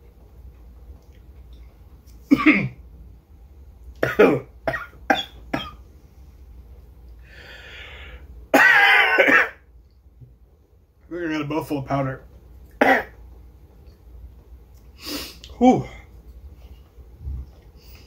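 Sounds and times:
man coughing: 2.3 - 2.8, 4.0 - 5.8, 8.6 - 9.6, 12.8 - 13.2.

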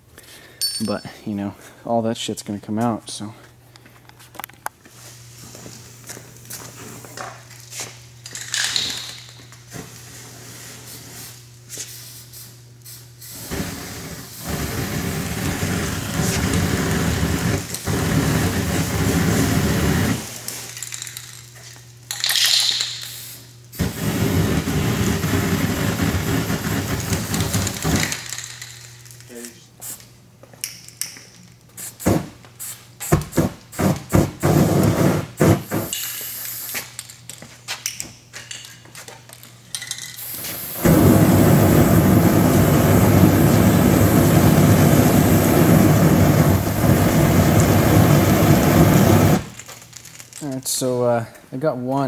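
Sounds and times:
gas torch flame rushing: 13.2 - 20.6, 23.1 - 28.2, 31.8 - 36.8, 40.2 - 49.6
short hiss: 35.7 - 36.9.

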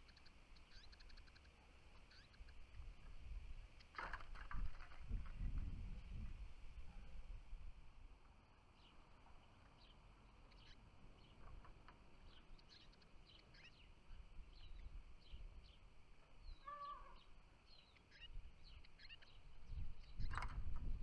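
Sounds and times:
small songbirds chirping: 0.0 - 4.0, 8.4 - 21.0.

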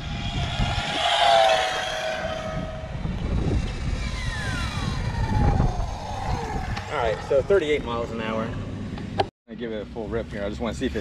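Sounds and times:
electric motor whine: 0.0 - 8.0
wind rumble on microphone: 0.0 - 9.2.

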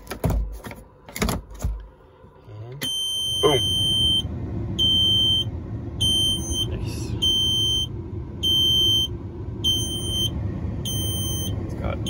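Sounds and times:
steady low rumble: 1.4 - 12.0
dash warning buzzer beeping: 2.8 - 10.3, 10.9 - 11.6.

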